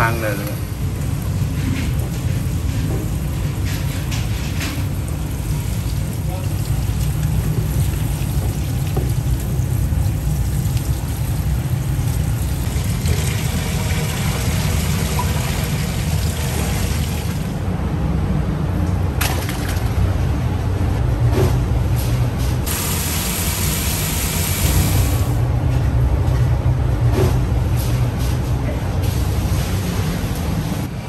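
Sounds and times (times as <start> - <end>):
tap water rushing: 4.2 - 17.6.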